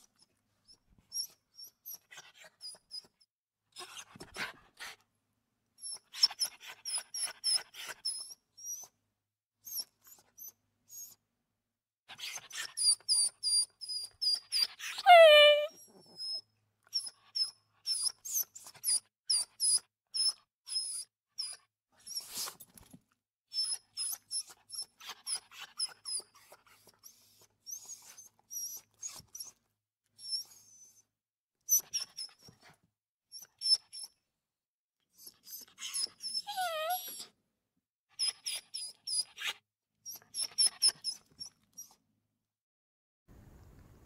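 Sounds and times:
dog whimpering: 14.6 - 16.4, 35.2 - 37.3.

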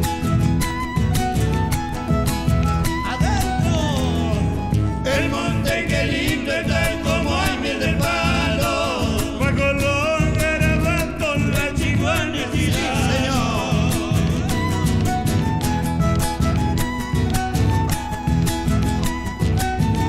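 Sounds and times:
strummed acoustic guitars: 0.0 - 20.0
violin: 0.0 - 20.0
drum beating rhythm: 0.6 - 19.2
man singing: 3.0 - 15.0.

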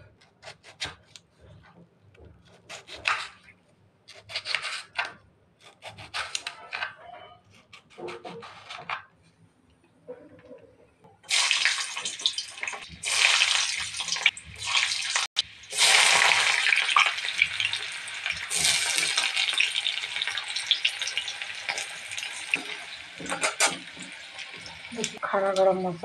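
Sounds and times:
onion sizzling in hot oil: 11.3 - 26.0.

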